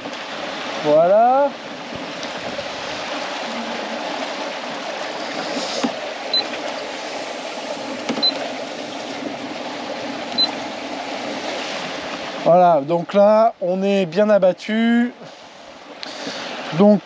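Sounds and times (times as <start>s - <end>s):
sea water rushing past hull: 0.0s - 17.0s
short high keypad beeps: 6.3s - 6.5s, 8.2s - 8.4s, 10.4s - 10.6s.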